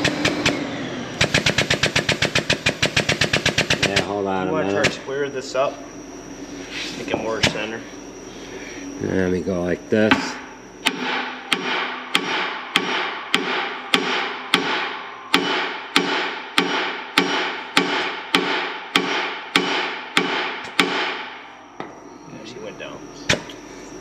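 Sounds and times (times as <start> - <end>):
sledgehammer striking steel: 10.1 - 21.4.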